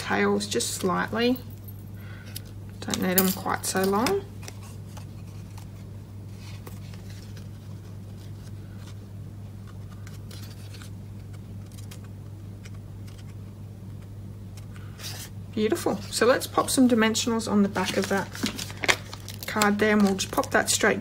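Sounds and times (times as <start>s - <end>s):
steady low hum: 0.0s - 21.0s
light clicks and rustles of card: 9.6s - 15.3s.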